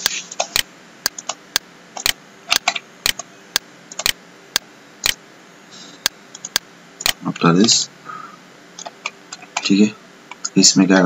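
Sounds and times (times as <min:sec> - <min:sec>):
steady ticking clicks: 0:00.4 - 0:05.2, 0:06.0 - 0:07.8.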